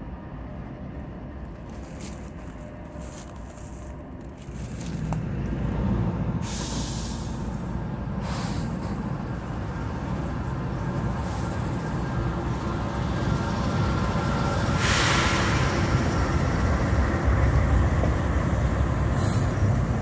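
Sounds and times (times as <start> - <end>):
train rumbling across bridge: 0.0 - 20.0
hiss: 6.4 - 9.1, 14.6 - 16.5, 19.1 - 20.0.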